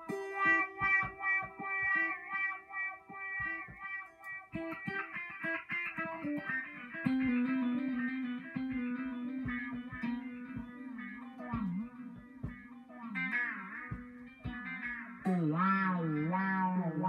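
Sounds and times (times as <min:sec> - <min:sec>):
electric guitar solo: 0:00.0 - 0:17.0.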